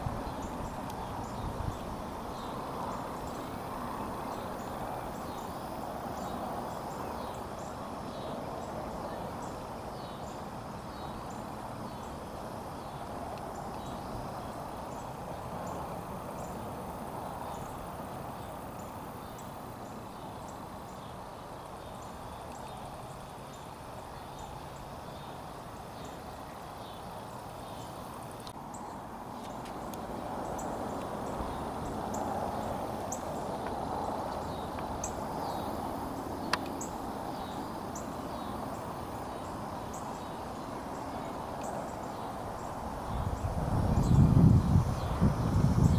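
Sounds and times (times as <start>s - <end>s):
faint high ticks: 36.4s - 36.9s.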